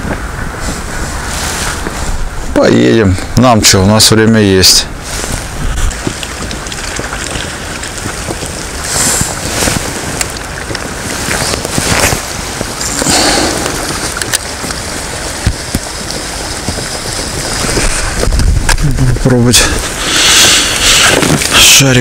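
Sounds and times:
wind buffeting microphone: 0.0 - 22.0
choppy water lapping: 4.9 - 22.0.

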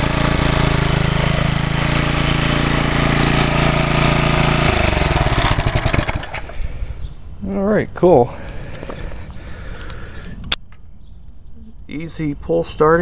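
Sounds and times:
lawn mower engine running and stopping: 0.0 - 6.8.

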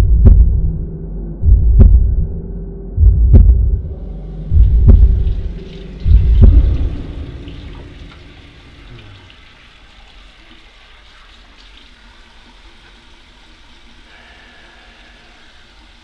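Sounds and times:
deep low rumble: 0.0 - 9.1
hands washing: 4.3 - 16.0
tap water running into sink: 4.6 - 14.1.

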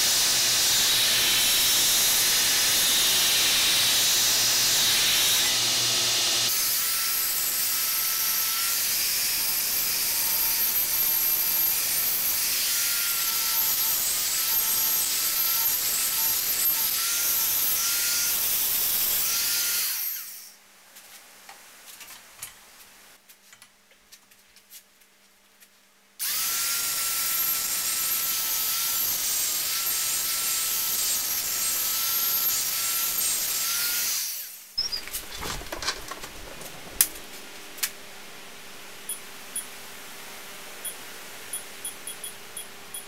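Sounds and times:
rotary grinder whining on steel: 0.0 - 20.5.

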